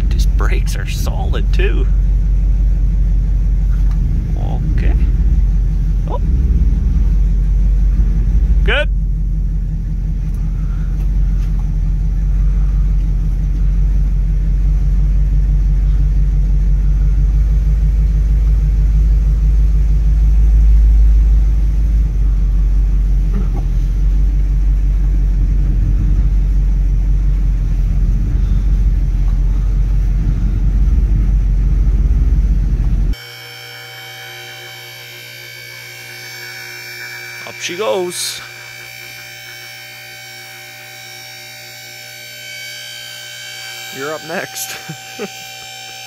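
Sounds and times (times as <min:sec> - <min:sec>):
car engine idling rumble: 0:00.0 - 0:33.2.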